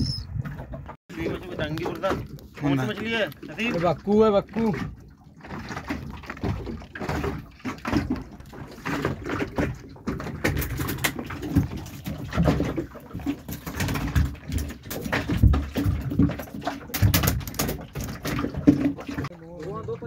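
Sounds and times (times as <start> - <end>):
fish flapping on boat deck: 4.5 - 19.3.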